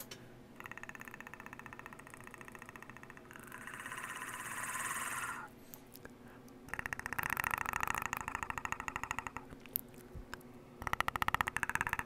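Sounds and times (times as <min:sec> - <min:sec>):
man making clicking throat growl: 0:00.6 - 0:05.4, 0:06.7 - 0:09.5, 0:10.8 - 0:12.0.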